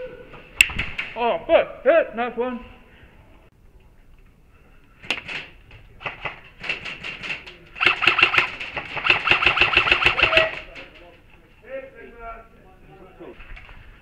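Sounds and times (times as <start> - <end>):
airsoft guns firing: 5.0 - 11.0.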